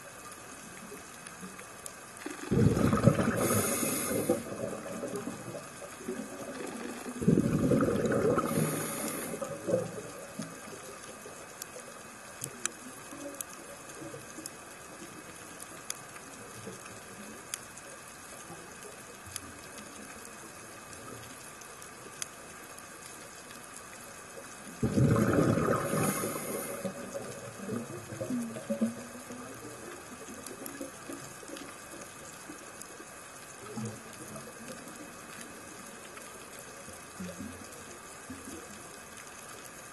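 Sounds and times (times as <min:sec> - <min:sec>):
steady underwater hiss: 0:00.0 - 0:39.9
exhaled bubbles gurgling: 0:02.2 - 0:14.4, 0:24.5 - 0:32.8.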